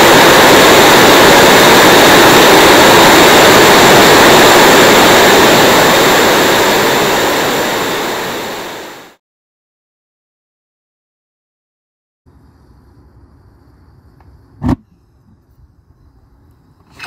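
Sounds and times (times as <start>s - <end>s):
jet engine roaring with whistle: 0.0s - 9.2s.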